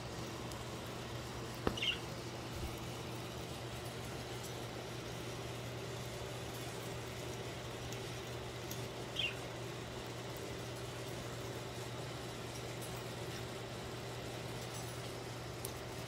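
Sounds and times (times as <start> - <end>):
low background hum: 0.0 - 16.0
faint clicks of birds in cage: 0.2 - 16.0
budgerigar chirp: 1.8 - 2.0.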